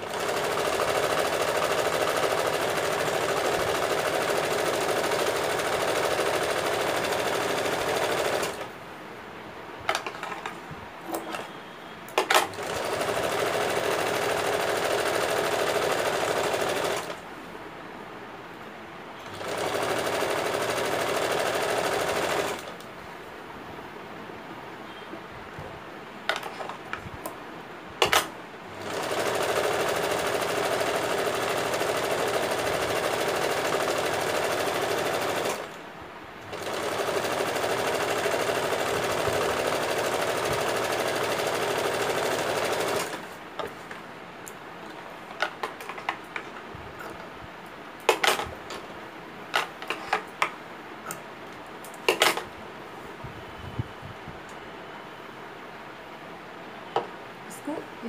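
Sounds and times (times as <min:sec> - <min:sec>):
electric sewing machine running: 0:00.0 - 0:08.7, 0:12.4 - 0:17.2, 0:19.3 - 0:22.7, 0:28.1 - 0:35.8, 0:36.4 - 0:43.4
handling noises: 0:09.8 - 0:12.7, 0:43.1 - 0:53.4.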